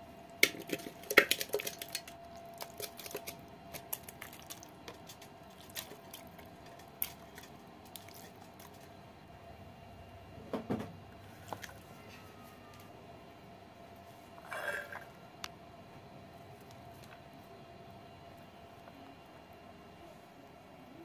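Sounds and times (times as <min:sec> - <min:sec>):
faint steady hum: 0:00.0 - 0:21.0
wet squelches of raw chicken: 0:00.4 - 0:09.0, 0:11.3 - 0:12.8.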